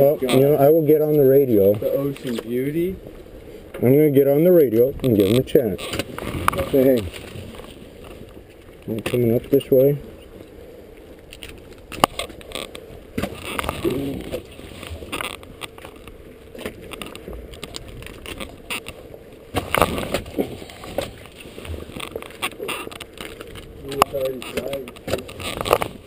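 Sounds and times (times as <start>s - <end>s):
water noise: 0.0s - 26.0s
knocks and clicks of fishing net: 5.0s - 8.3s, 11.3s - 16.0s, 16.6s - 26.0s.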